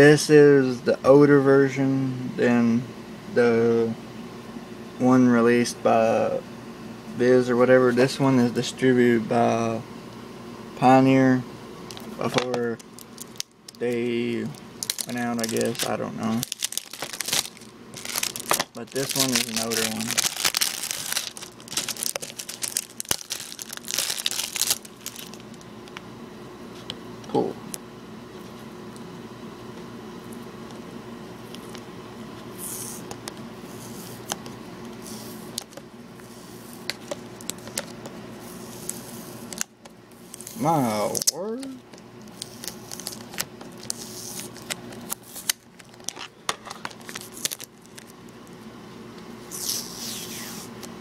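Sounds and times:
plastic wrapping crinkling: 0:12.7 - 0:13.8, 0:14.4 - 0:25.7, 0:42.4 - 0:48.1.

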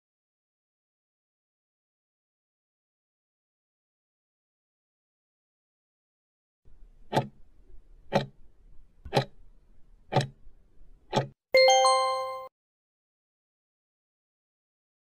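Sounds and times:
clock ticking: 0:07.1 - 0:07.4, 0:08.0 - 0:08.4, 0:09.1 - 0:09.4, 0:10.1 - 0:10.4, 0:11.1 - 0:11.4
bell-like chime: 0:11.6 - 0:12.5.

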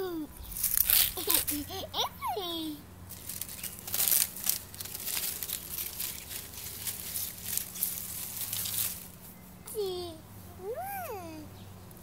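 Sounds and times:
dry palm fronds crackling: 0:00.5 - 0:01.8, 0:03.1 - 0:09.4.

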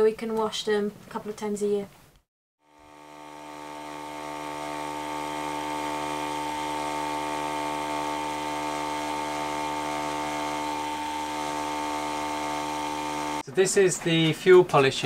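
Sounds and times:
electric fuel pump whining: 0:02.6 - 0:13.4.

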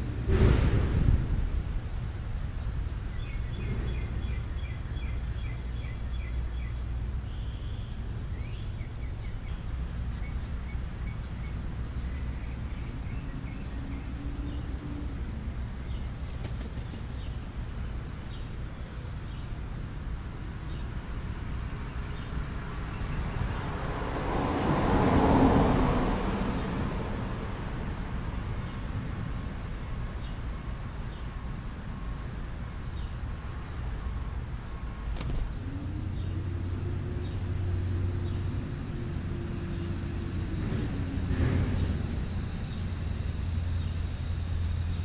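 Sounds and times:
steady low rumble: 0:00.0 - 0:16.2
birds chirping: 0:01.4 - 0:23.8, 0:29.7 - 0:45.0.

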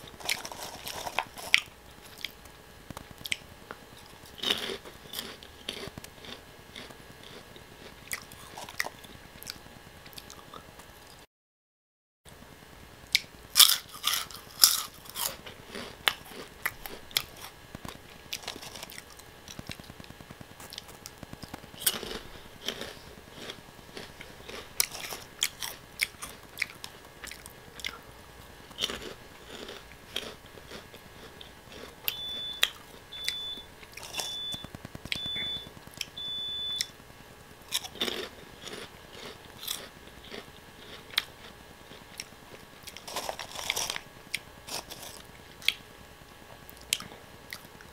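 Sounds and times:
crunching and chewing snacks: 0:00.0 - 0:10.9, 0:13.1 - 0:36.9, 0:37.6 - 0:45.8, 0:46.5 - 0:47.9
short high beeps: 0:32.1 - 0:36.9.

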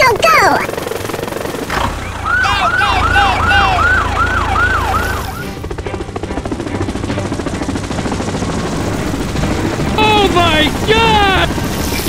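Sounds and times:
helicopter rotor chop: 0:00.0 - 0:12.0
siren yelps: 0:01.8 - 0:05.6.

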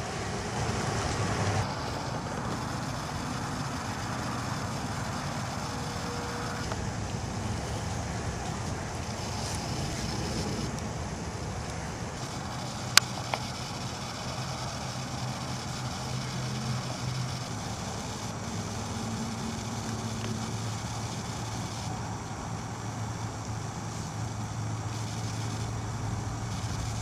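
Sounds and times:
engine idling: 0:00.0 - 0:27.0
sharp clicks: 0:11.7 - 0:17.5.

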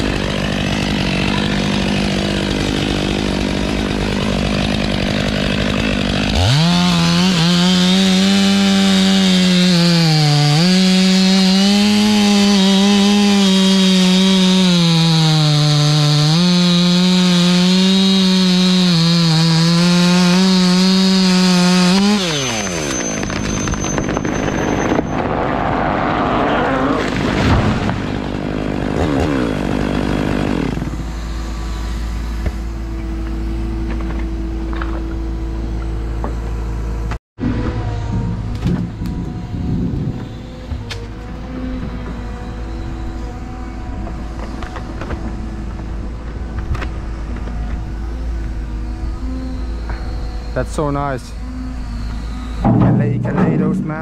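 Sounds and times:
tree crackling: 0:00.0 - 0:36.8
chainsaw cutting wood: 0:00.0 - 0:54.0
falling tree thumps: 0:27.0 - 0:28.4.

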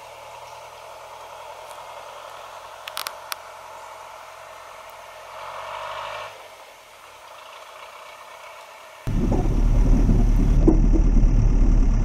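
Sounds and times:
distant diesel engine running: 0:09.1 - 0:12.0.

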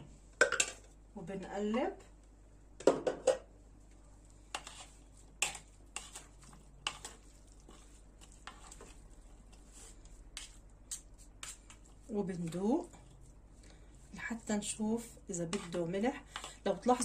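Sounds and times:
soft wet stirring: 0:03.8 - 0:17.0.

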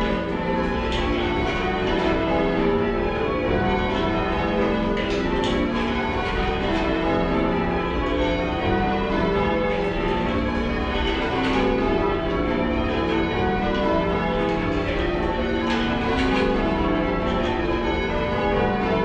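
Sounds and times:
church bells change ringing: 0:00.0 - 0:19.0.

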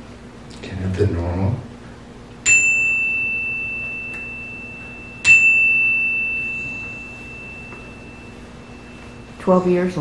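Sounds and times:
chime struck with mallet: 0:02.5 - 0:09.6.

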